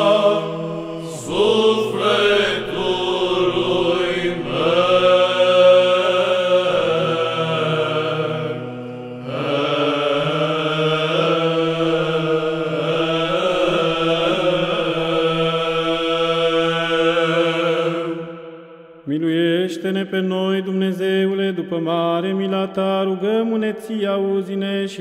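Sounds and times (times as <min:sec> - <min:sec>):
voices chanting a melodic line: 0:00.0 - 0:18.3
low held drone: 0:00.0 - 0:18.5.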